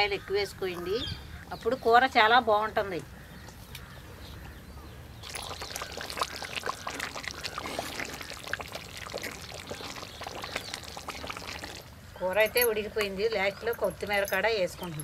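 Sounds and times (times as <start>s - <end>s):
curry bubbling in a pot: 5.2s - 12.0s.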